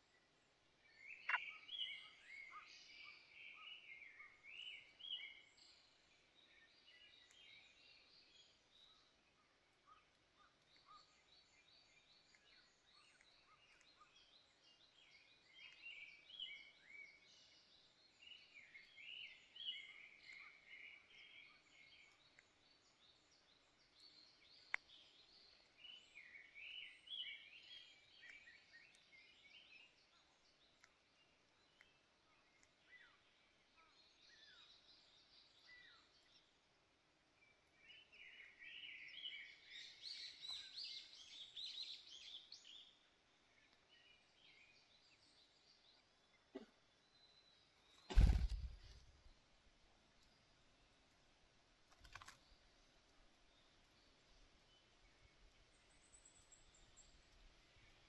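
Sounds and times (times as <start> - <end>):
nestlings chirping: 48.0 - 49.0.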